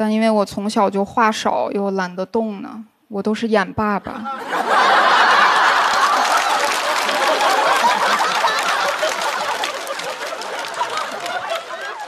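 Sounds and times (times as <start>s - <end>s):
audience laughing: 4.2s - 12.0s
audience clapping: 4.6s - 12.0s.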